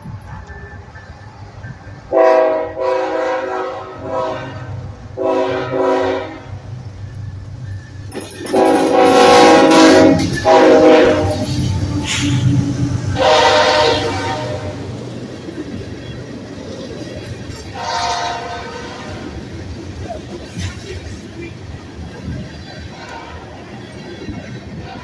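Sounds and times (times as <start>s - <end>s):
locomotive horn blasts: 2.0s - 6.6s, 8.4s - 15.0s, 17.7s - 19.4s, 22.9s - 23.7s.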